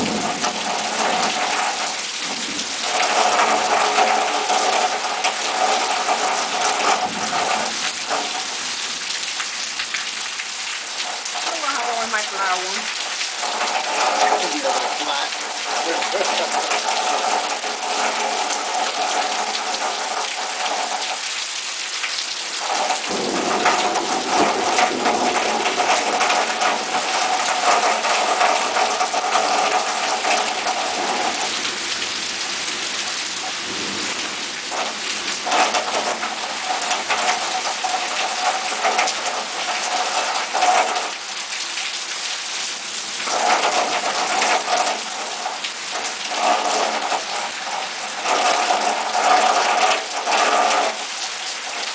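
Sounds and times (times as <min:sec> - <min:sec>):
low rumble of thunder: 0:00.0 - 0:08.5, 0:22.6 - 0:32.8, 0:33.6 - 0:40.0
heavy rain on foliage: 0:00.0 - 0:51.9.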